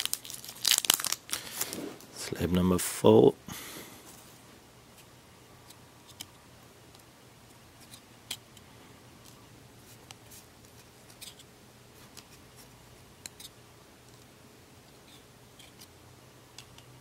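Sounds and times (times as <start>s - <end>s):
trading cards flipping: 10.0s - 12.4s.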